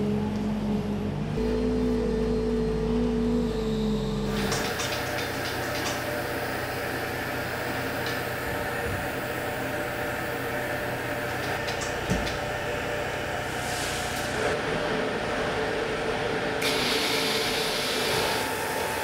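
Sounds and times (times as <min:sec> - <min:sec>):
forklift engine: 0:00.0 - 0:19.0
machinery hum and hiss: 0:16.6 - 0:19.0.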